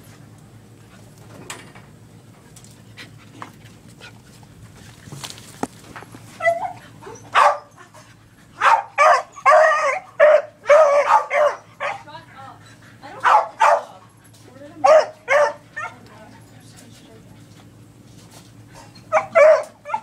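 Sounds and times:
dog whining: 0:06.4 - 0:07.4
dog barking: 0:06.4 - 0:07.7, 0:08.6 - 0:12.1, 0:13.2 - 0:13.9, 0:14.8 - 0:16.0, 0:19.1 - 0:20.0.

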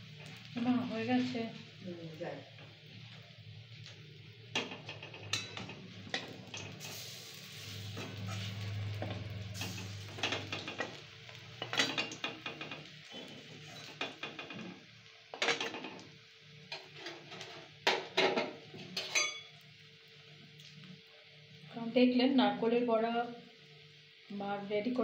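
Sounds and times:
faint oil sizzle: 0:00.0 - 0:25.0
spatula scraping a steel wok: 0:05.3 - 0:11.0, 0:12.8 - 0:14.2.

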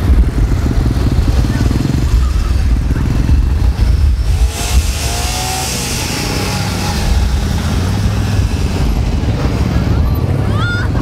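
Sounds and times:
vehicle engines rumbling past: 0:00.0 - 0:11.0
rushing hiss of passing vehicle: 0:02.5 - 0:10.0.

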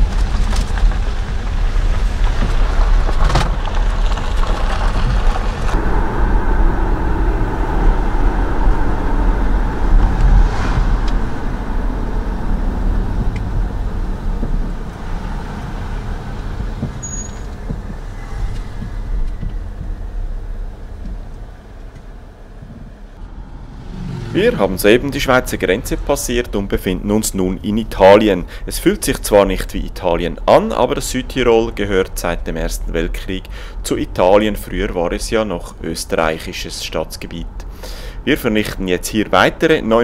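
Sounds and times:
road and engine noise in car cabin: 0:00.0 - 0:27.2.

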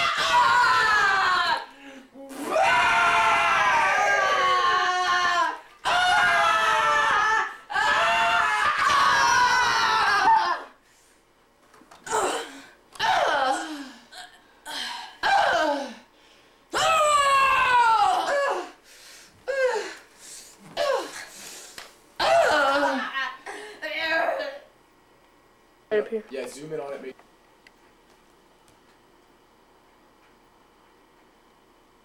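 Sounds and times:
young people laughing and shrieking: 0:02.6 - 0:10.8.

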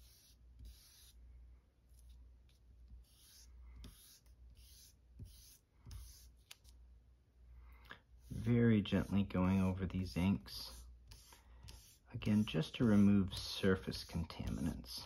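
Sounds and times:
eraser rubbing on paper: 0:00.0 - 0:01.2, 0:02.9 - 0:06.6, 0:10.0 - 0:15.0.

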